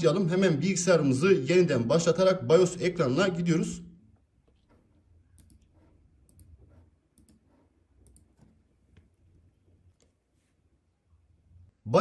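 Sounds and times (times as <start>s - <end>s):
laptop keys clicking: 7.2s - 8.6s.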